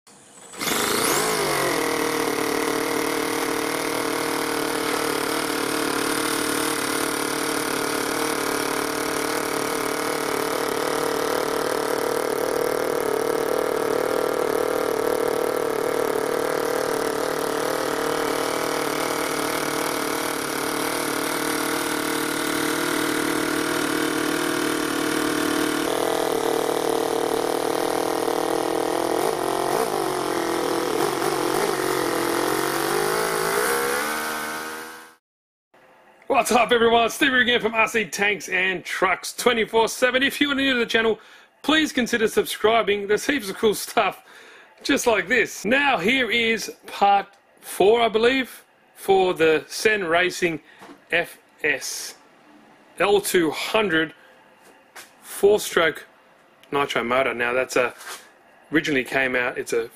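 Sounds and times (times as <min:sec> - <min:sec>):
model engine running: 0:00.1 - 0:35.2.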